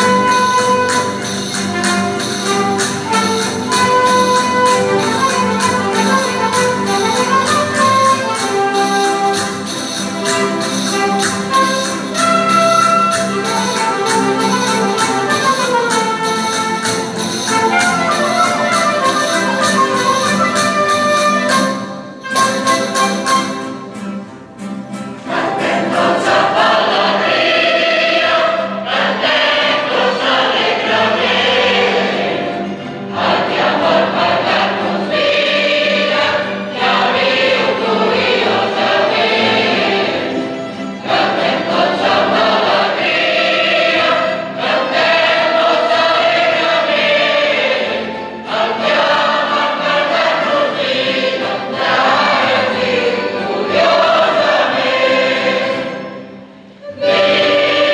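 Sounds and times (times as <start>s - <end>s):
mixed choir singing: 25.2s - 57.9s.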